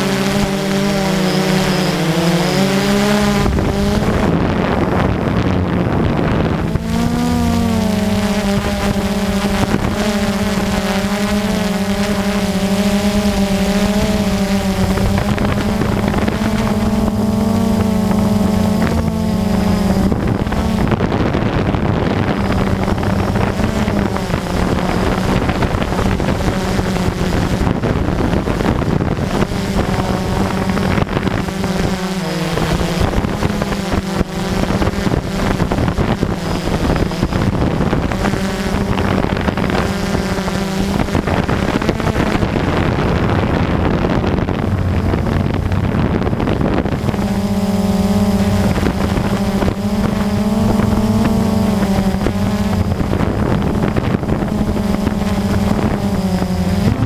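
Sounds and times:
drone motors whining: 0.0 - 57.0
wind buffeting microphone: 0.0 - 57.0.

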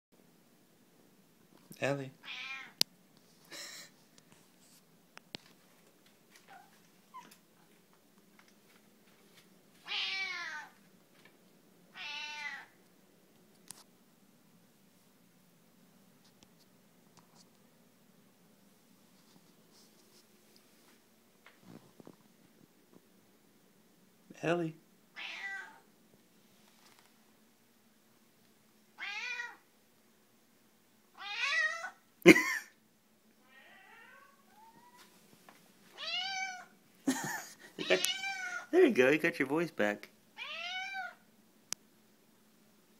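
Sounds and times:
cat meowing raspily: 2.2 - 2.8, 9.8 - 10.8, 11.9 - 12.8, 25.2 - 25.8, 29.0 - 29.6, 31.2 - 32.0, 33.4 - 35.1, 35.9 - 36.7, 37.8 - 38.7, 40.4 - 41.2.

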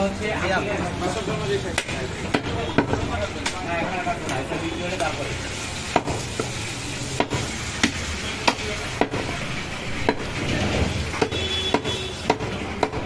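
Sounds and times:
background noise: 0.0 - 13.0
blade chopping meat: 7.2 - 9.3, 11.1 - 13.0.

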